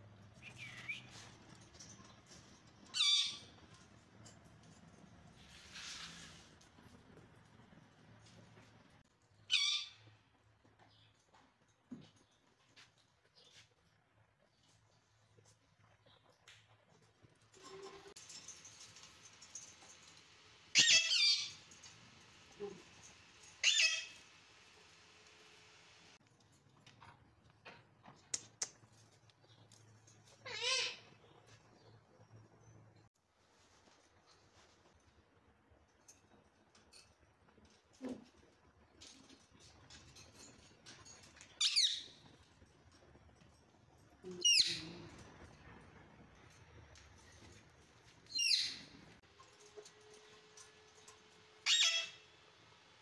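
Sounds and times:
parakeet screeching: 0:20.8 - 0:21.5, 0:23.6 - 0:24.2, 0:30.5 - 0:31.1, 0:51.6 - 0:52.2.

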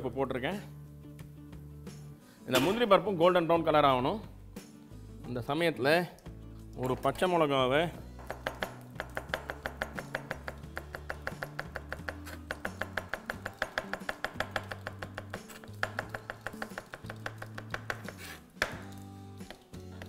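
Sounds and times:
background music: 0:00.0 - 0:20.0
knife chopping on cutting board: 0:08.2 - 0:18.9.

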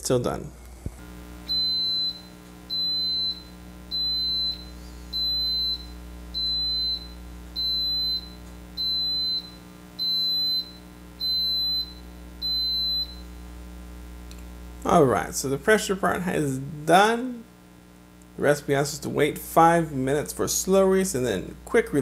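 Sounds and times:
pressure cooker beeping: 0:01.4 - 0:13.2.

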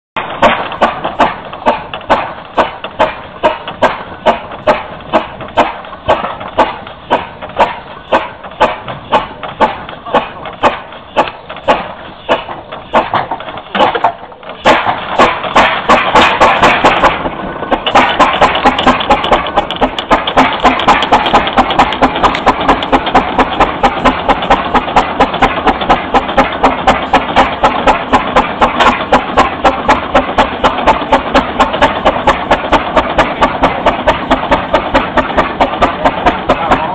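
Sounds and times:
steam engine exhaust beats: 0:00.2 - 0:36.9
steam rushing: 0:00.2 - 0:36.9.

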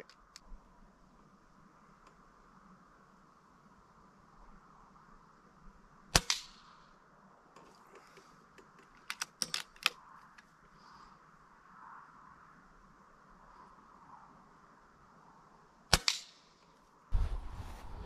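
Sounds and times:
metallic clicks of rifle lever: 0:00.0 - 0:00.5, 0:06.1 - 0:06.6, 0:07.6 - 0:10.5, 0:15.9 - 0:16.8
air rifle shot: 0:06.2 - 0:06.6.

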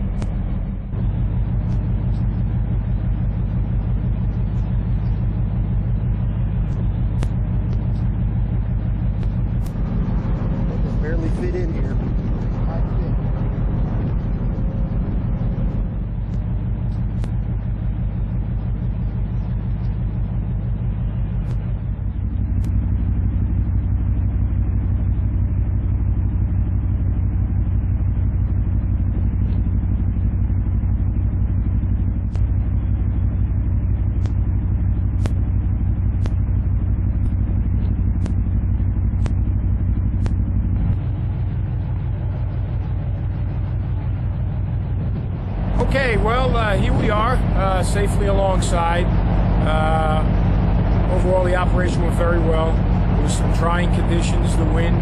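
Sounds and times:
diesel engines rumbling: 0:00.0 - 0:55.0.

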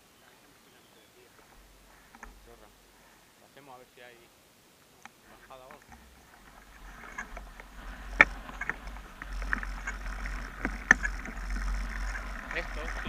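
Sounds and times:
bike tyres on dirt trail: 0:00.0 - 0:03.4, 0:05.1 - 0:13.0
bike rattling and clicking: 0:01.3 - 0:03.2, 0:05.3 - 0:13.0
bike knocking over bumps: 0:05.8 - 0:13.0
wind rumble on microphone: 0:05.9 - 0:13.0.

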